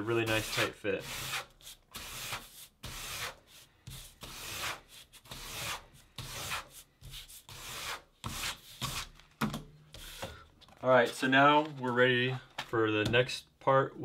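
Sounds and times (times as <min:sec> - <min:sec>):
notepad rubbing over paper: 0:00.2 - 0:09.2.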